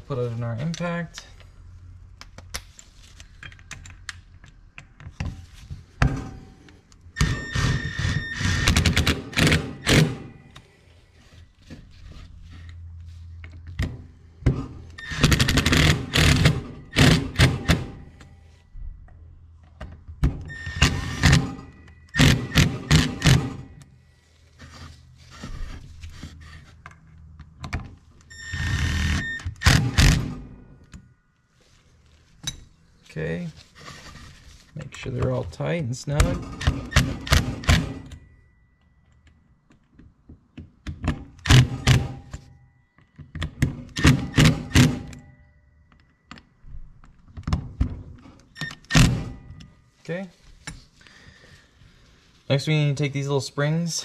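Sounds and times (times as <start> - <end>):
impact driver hammering screws: 7.2 - 10.3, 15.0 - 18.0, 20.6 - 23.7, 28.6 - 30.4, 36.3 - 38.2, 41.4 - 42.4, 43.9 - 45.2.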